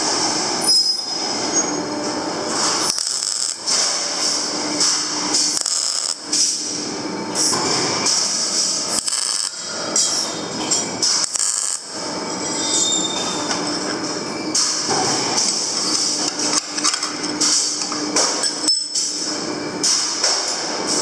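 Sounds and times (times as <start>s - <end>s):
welder arc crackling and hissing: 1.2s - 12.6s.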